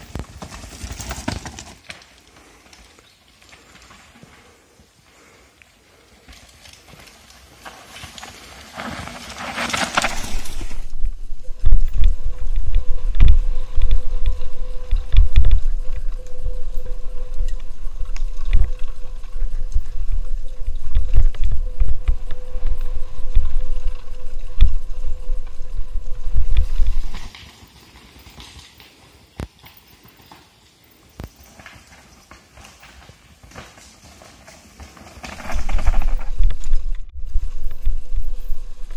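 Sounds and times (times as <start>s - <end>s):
wind buffeting microphone: 10.6s - 27.3s.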